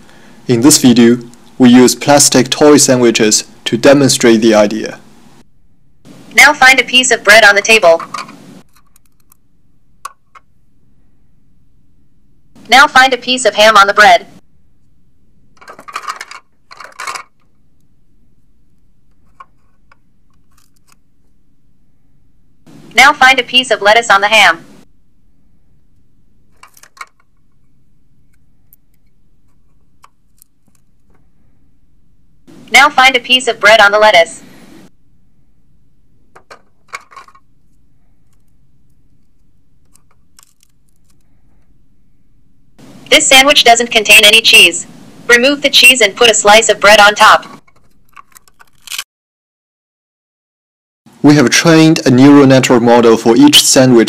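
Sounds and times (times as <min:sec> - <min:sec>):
plastic toy pieces clattering: 0:15.6 - 0:17.5, 0:26.6 - 0:27.3, 0:36.4 - 0:37.4, 0:39.9 - 0:41.2, 0:47.6 - 0:49.0.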